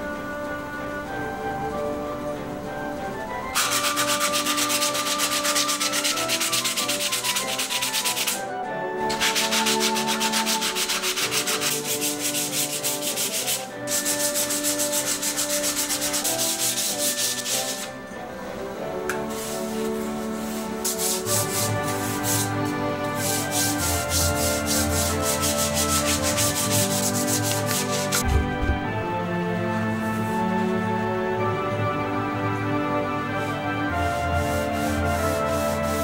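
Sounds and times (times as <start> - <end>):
background music: 0.0 - 36.0
sanding block scratching: 3.6 - 8.5, 9.1 - 18.0, 19.2 - 28.3, 33.3 - 36.0.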